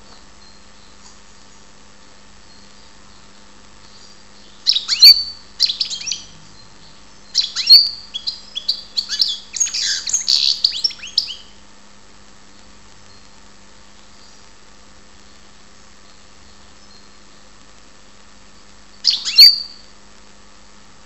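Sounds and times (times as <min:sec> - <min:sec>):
goldfinch twittering song: 0:03.9 - 0:11.5, 0:19.0 - 0:19.8.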